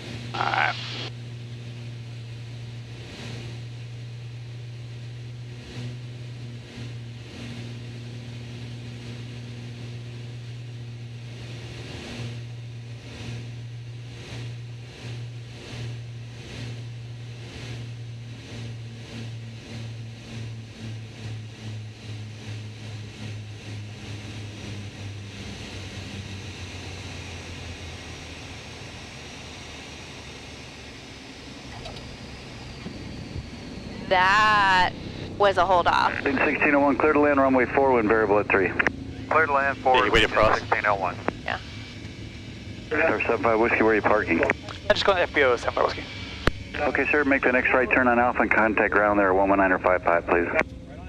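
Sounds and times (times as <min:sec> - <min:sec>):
propeller aircraft engines droning: 0:00.0 - 0:51.0.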